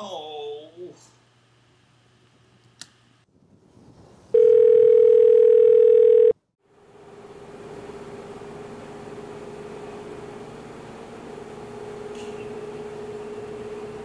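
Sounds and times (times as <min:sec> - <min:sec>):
telephone dial tone: 0:04.4 - 0:06.4.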